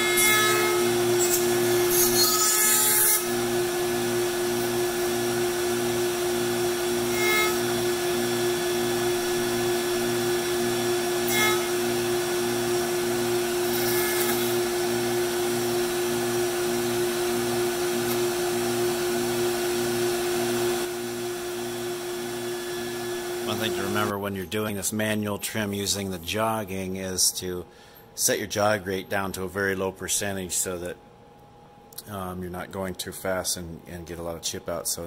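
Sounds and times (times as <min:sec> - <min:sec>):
router cutting wood: 0:00.0 - 0:24.1
router spindle running: 0:03.2 - 0:24.1.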